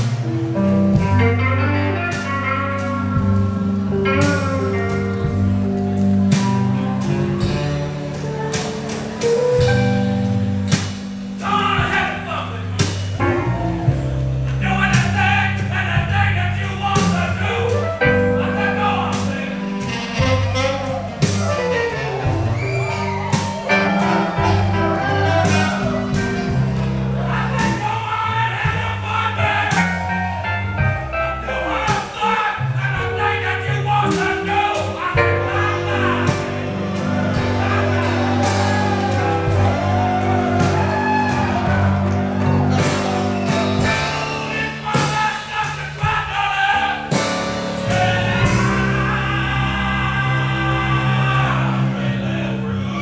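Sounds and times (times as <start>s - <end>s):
saxophone: 0.0s - 15.0s, 17.5s - 33.2s, 34.2s - 45.1s
blues band playing: 0.0s - 53.0s
drums: 0.0s - 53.0s
upright bass: 0.0s - 53.0s
drum or cymbal hits: 34.1s - 42.0s.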